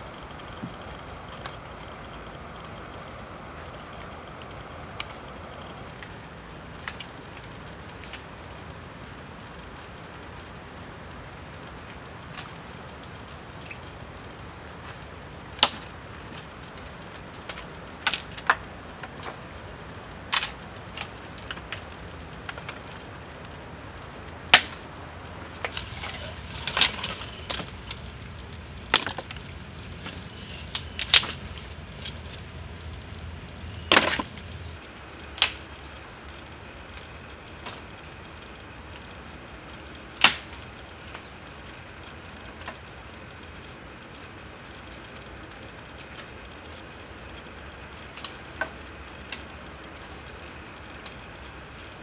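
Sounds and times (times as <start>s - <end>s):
twigs crackling: 3.8s - 52.0s
dry branches snapping: 5.9s - 23.6s, 24.4s - 28.0s, 30.0s - 32.4s, 33.9s - 52.0s.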